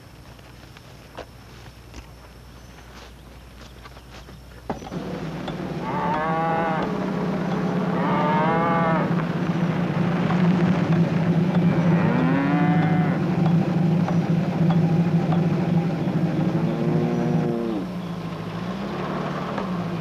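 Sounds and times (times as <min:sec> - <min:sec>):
steady low drone: 0:04.9 - 0:18.1
cattle mooing: 0:05.5 - 0:09.4, 0:11.5 - 0:13.5, 0:16.5 - 0:17.9.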